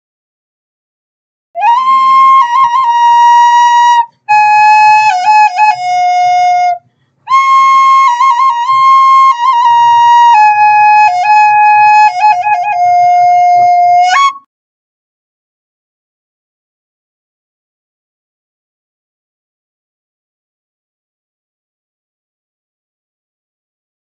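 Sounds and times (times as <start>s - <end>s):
solo flute melody: 1.6s - 14.5s
flute player breaths: 6.8s - 7.3s.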